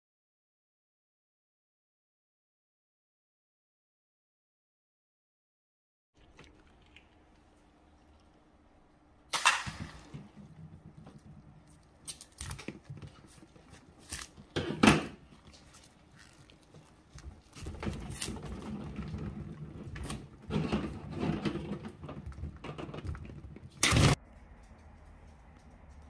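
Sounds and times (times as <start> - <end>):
hands rubbing wet rubber: 15.2 - 18.4.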